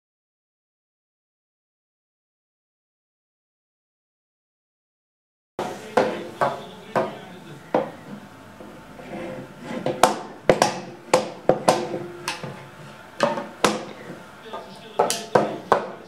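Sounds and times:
toy drum strikes: 14.6 - 16.0.

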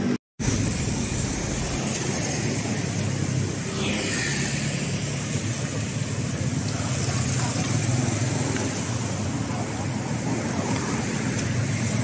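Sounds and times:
motorbike and car traffic: 0.0 - 12.0.

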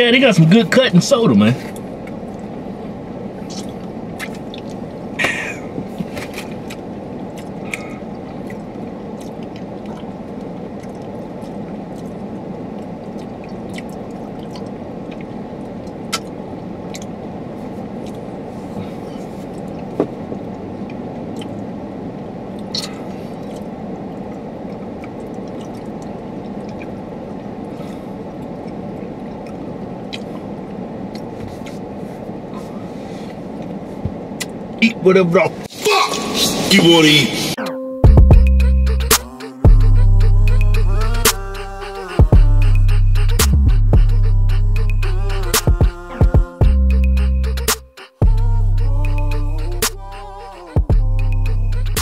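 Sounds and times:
car cabin hum: 0.0 - 35.7.

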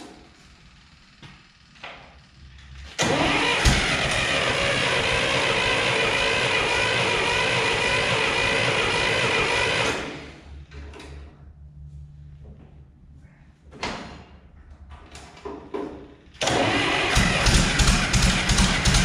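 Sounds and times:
starter motor cranking engine: 2.9 - 10.2, 16.4 - 19.0.

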